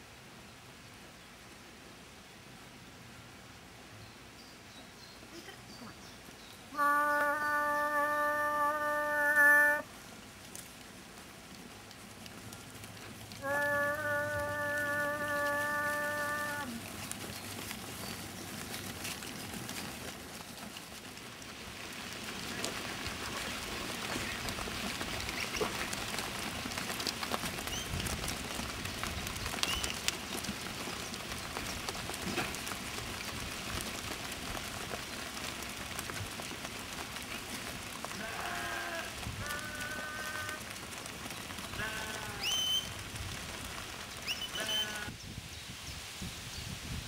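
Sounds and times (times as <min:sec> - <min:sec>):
sheep hooves pattering on road: 0:04.4 - 0:45.2
sheep bleating: 0:13.4 - 0:16.8, 0:38.2 - 0:40.6, 0:41.8 - 0:42.5, 0:44.6 - 0:45.1.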